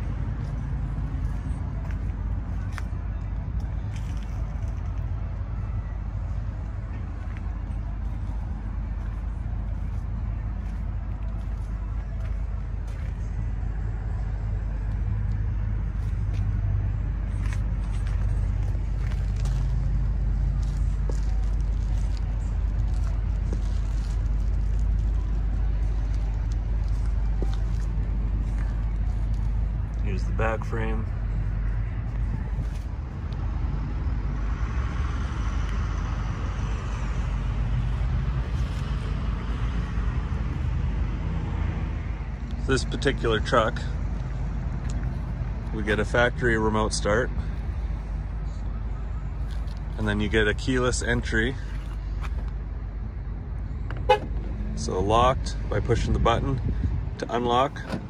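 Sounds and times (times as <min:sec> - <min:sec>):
diesel engine idling: 0:00.0 - 0:34.4
traffic noise rush: 0:00.0 - 0:58.0.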